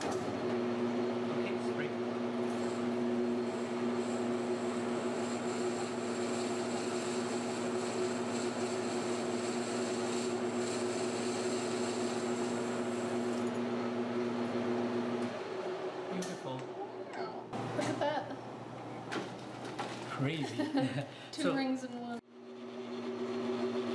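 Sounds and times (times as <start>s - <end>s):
metal lathe humming: 1.9s - 16.1s.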